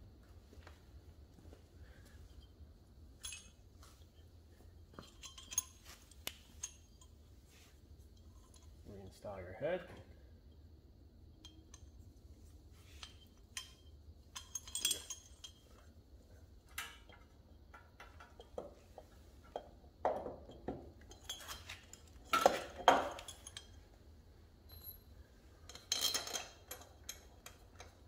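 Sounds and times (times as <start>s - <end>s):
metallic clinks and knocks: 2.2s - 8.8s, 9.8s - 24.0s, 24.6s - 28.0s.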